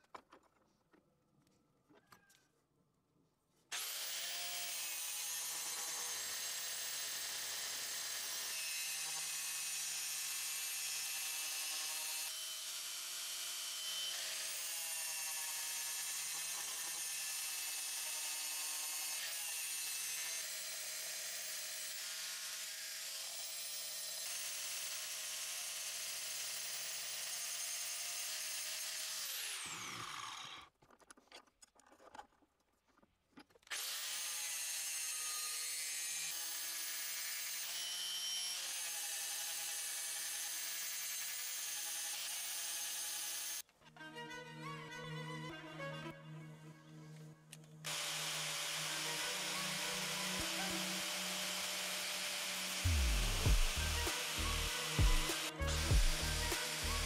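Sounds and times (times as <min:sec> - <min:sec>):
angle grinder grinding steel: 0:03.7 - 0:25.0, 0:25.8 - 0:30.7, 0:47.8 - 0:57.0.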